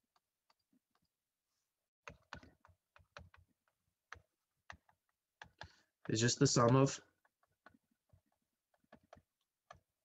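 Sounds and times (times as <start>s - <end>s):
stylus tapping on touchscreen: 2.1s - 9.9s.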